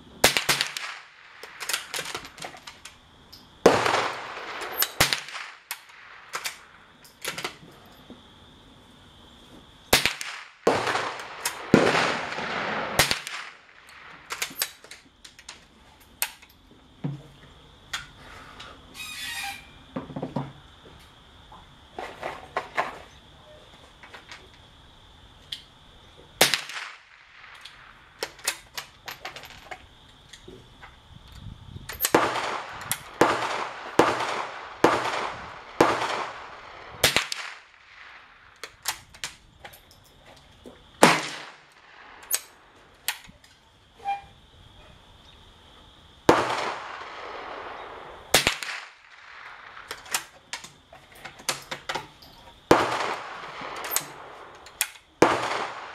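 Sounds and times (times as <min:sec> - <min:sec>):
rifle gunshots with echo: 0:03.6 - 0:06.3, 0:10.0 - 0:14.2, 0:32.1 - 0:38.2, 0:46.3 - 0:49.9, 0:52.7 - 0:54.4, 0:55.2 - 0:55.9.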